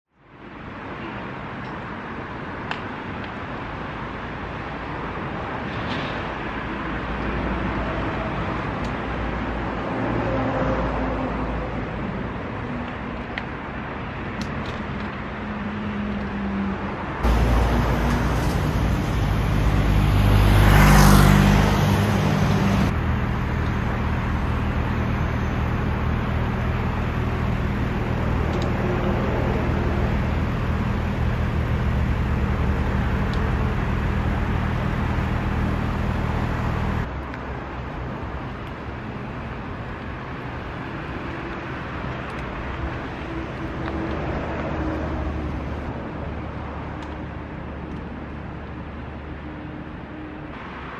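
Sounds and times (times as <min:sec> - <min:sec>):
road noise: 0:00.1 - 0:50.9
vehicle engine running: 0:17.2 - 0:37.1
vehicle passing close: 0:17.2 - 0:37.1.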